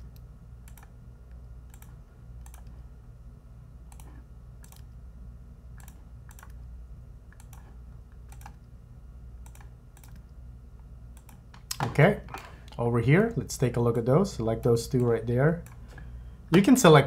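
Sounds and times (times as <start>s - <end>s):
steady low hum: 0.0s - 17.0s
mouse and keyboard clicking: 1.7s - 2.8s, 5.8s - 6.6s.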